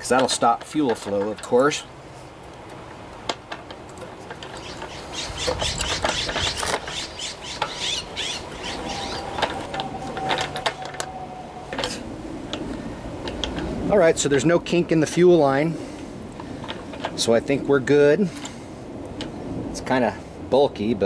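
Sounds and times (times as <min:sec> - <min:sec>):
rubber hose rubbing and scratching: 0:04.3 - 0:10.9.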